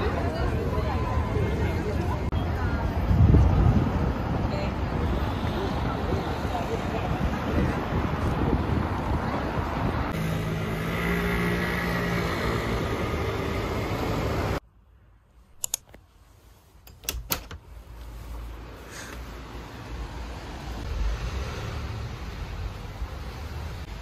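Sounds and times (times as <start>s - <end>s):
street traffic noise: 0.0s - 24.0s
window latch clicks: 16.9s - 17.6s.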